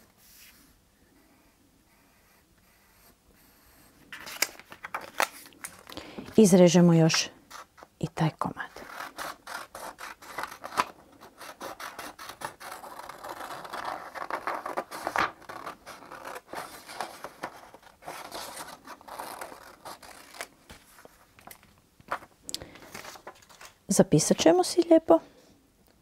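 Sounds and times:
scissors snipping paper: 0:08.8 - 0:20.5.

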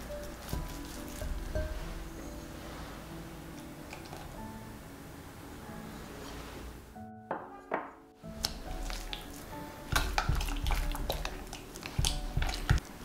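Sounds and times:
spatula mixing wet dough: 0:00.0 - 0:02.1, 0:08.3 - 0:13.0
soft music: 0:00.0 - 0:13.0.

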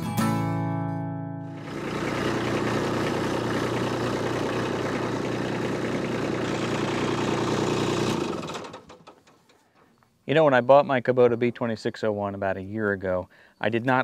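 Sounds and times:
diesel tractor engine running: 0:01.4 - 0:09.6.

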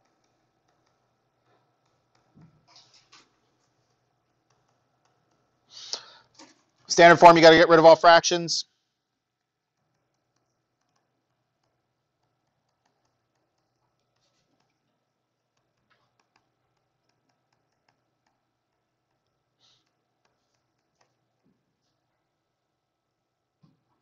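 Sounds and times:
stylus tapping on screen: 0:00.0 - 0:05.7, 0:09.3 - 0:22.0
stylus scratching on screen: 0:00.0 - 0:07.9, 0:08.7 - 0:22.4.

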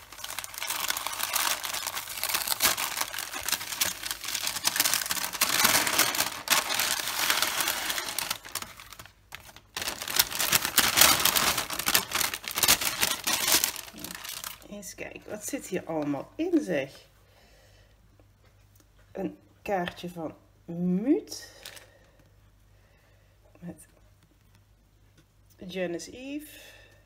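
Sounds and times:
paper crinkling and rustling: 0:00.0 - 0:14.7.

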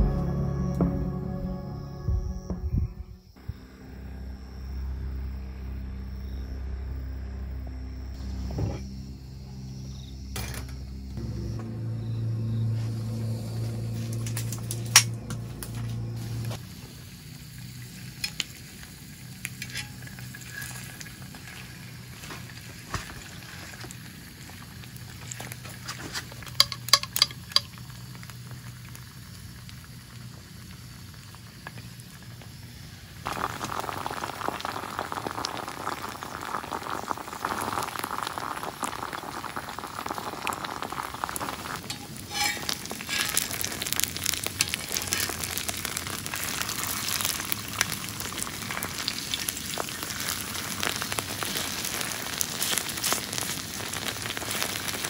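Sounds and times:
food sizzling in a pan: 0:16.2 - 0:55.0.

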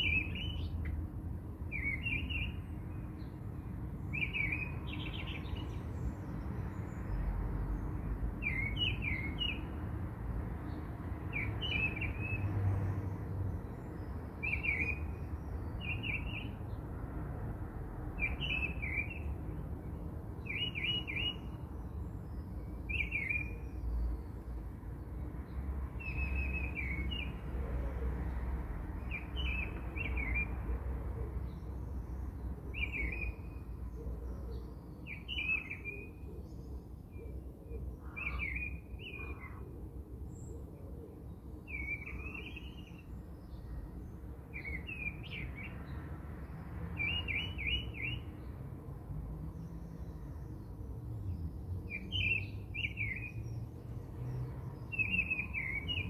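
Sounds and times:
small birds chirping: 0:00.0 - 0:09.8, 0:10.6 - 0:16.9, 0:18.1 - 0:19.4, 0:20.4 - 0:27.6, 0:29.0 - 0:30.7, 0:41.2 - 0:48.5, 0:49.5 - 0:56.0.

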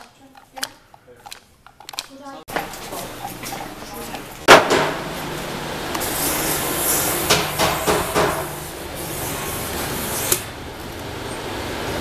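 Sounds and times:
steady noisy background: 0:00.0 - 0:12.0
sharp knocks: 0:04.5 - 0:05.0, 0:07.3 - 0:08.5.

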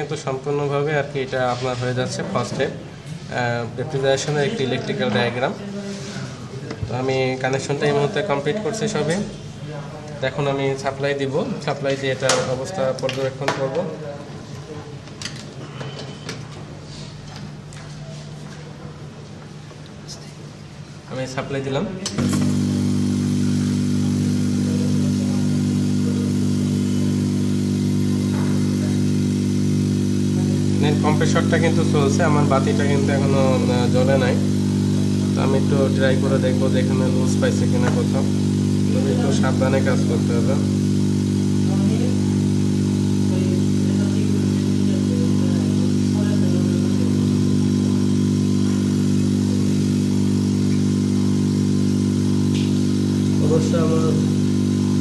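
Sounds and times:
refrigerator compressor humming: 0:20.2 - 0:55.0.

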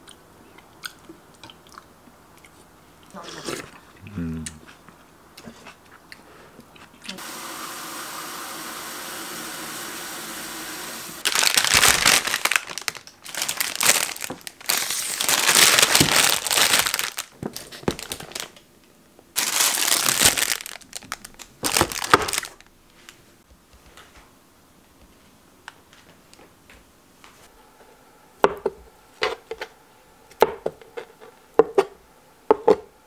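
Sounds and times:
plastic bags crinkling: 0:11.2 - 0:18.6, 0:19.4 - 0:23.2.

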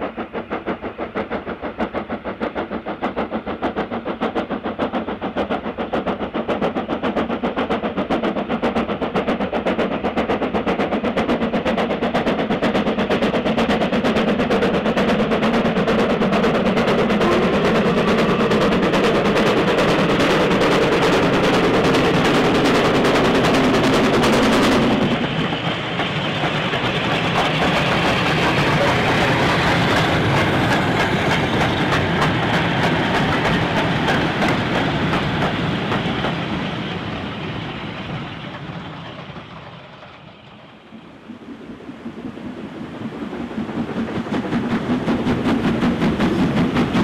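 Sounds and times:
steam locomotive exhaust: 0:00.0 - 0:47.0
steam locomotive exhaust beats: 0:00.0 - 0:47.0
wagons clattering over rail joints: 0:15.5 - 0:36.6.

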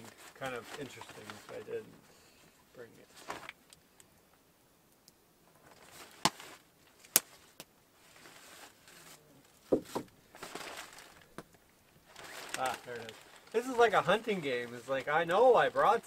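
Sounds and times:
bag fabric rustling and crinkling: 0:00.0 - 0:02.1, 0:03.0 - 0:03.6, 0:05.6 - 0:16.0
items knocking in a bag: 0:09.7 - 0:11.6.

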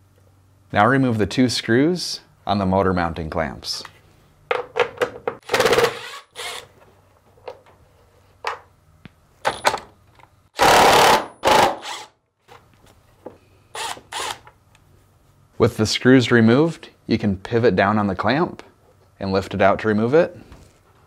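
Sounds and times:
cordless power driver whirring: 0:05.4 - 0:06.7, 0:10.7 - 0:12.1, 0:13.8 - 0:14.5.

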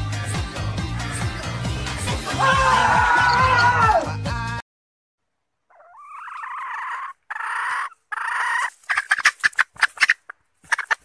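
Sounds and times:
chicken squawking and clucking: 0:05.7 - 0:11.0.

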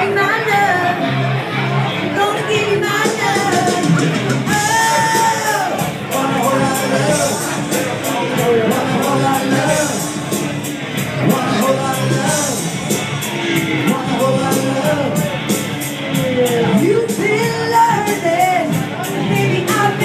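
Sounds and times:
woman singing into microphone: 0:00.0 - 0:01.2, 0:02.0 - 0:07.4, 0:16.2 - 0:20.0
music with steady beat: 0:02.9 - 0:20.0.

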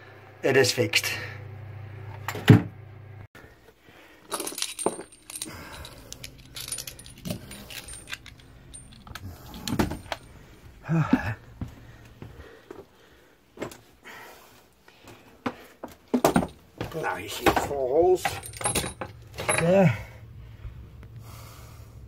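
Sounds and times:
metal tools clinking: 0:04.2 - 0:10.5, 0:16.2 - 0:20.0.

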